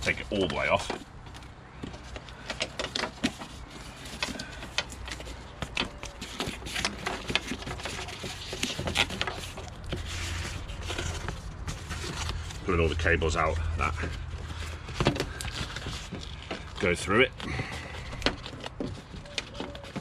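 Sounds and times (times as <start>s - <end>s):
plastic sheet peeling crackles: 0.0s - 13.1s.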